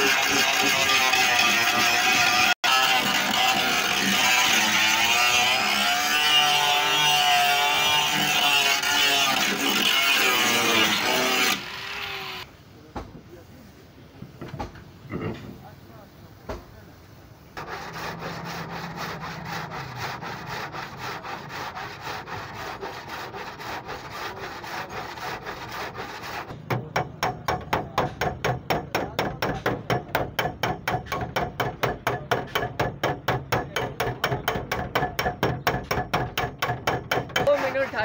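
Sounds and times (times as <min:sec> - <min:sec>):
hand sanding body filler: 0:17.6 - 0:26.6.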